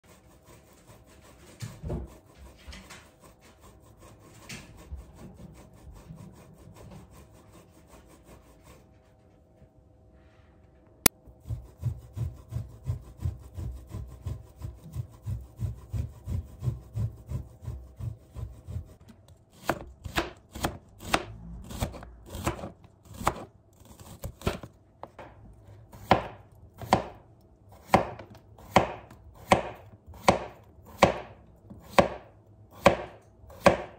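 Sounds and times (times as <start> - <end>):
grating on metal grater: 0.0 - 8.9, 11.4 - 19.0
knife chopping on plastic board: 15.3 - 33.9.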